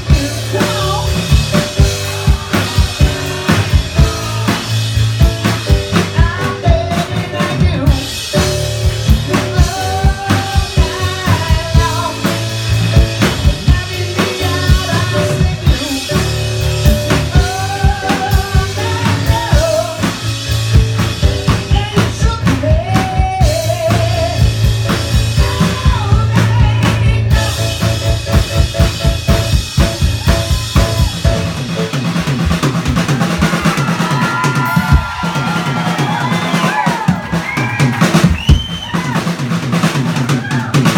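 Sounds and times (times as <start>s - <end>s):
person singing: 0.0s - 20.3s, 21.4s - 29.0s
bass line: 0.0s - 40.9s
drum kit playing a beat: 0.0s - 40.9s
piano: 0.0s - 40.9s.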